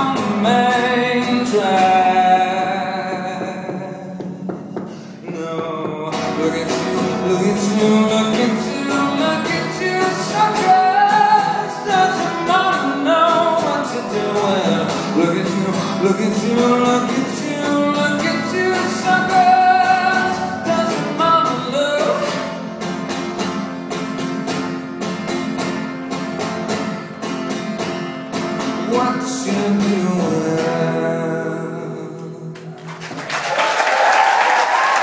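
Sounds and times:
man singing: 0.0 - 23.0, 28.6 - 32.9
acoustic guitar strumming: 0.0 - 33.3.

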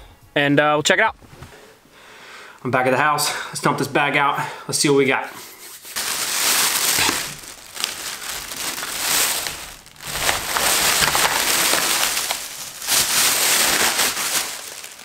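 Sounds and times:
plastic bag rustling: 5.8 - 15.0
packs clattering onto countertop: 6.0 - 15.0.

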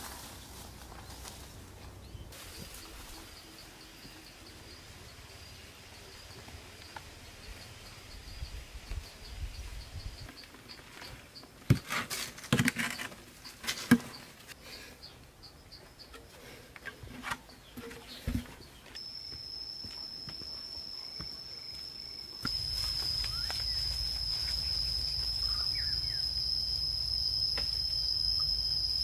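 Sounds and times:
insect trilling: 19.0 - 29.0.

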